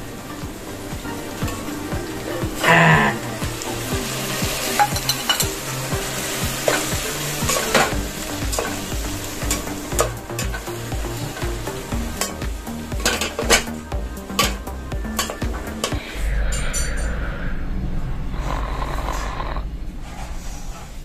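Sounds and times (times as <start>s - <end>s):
tomatoes sizzling in hot oil: 0.0s - 16.0s.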